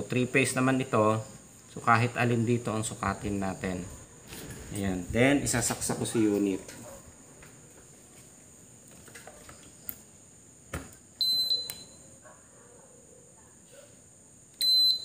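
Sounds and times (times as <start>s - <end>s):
high electronic beep: 11.2s - 12.0s, 14.6s - 15.0s
switch click: 11.5s - 11.9s.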